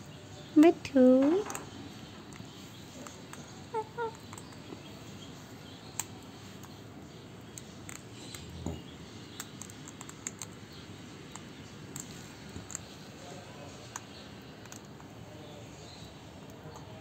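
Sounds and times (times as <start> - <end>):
beak clicks while chewing: 7.4 - 8.6, 9.3 - 13.0.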